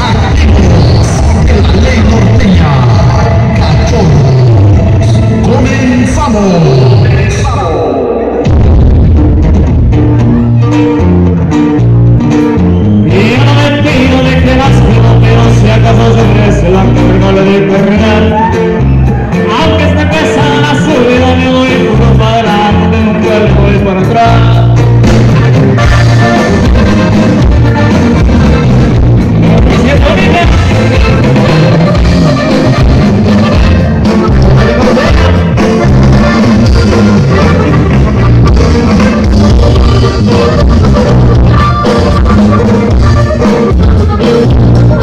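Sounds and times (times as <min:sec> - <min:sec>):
drum kit: 0:00.0 - 0:45.0
electric bass: 0:00.0 - 0:45.0
guitar: 0:00.0 - 0:45.0
button accordion: 0:24.7 - 0:45.0.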